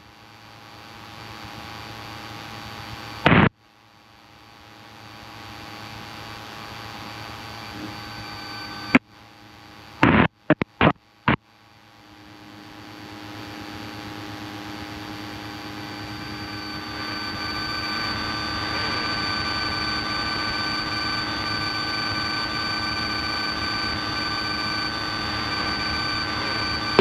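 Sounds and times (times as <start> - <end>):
propeller plane engine droning: 14.1 - 27.0.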